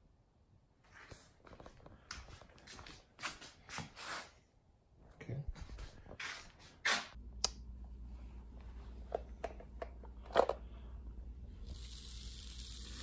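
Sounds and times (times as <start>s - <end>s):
low steady hum: 7.2s - 13.0s.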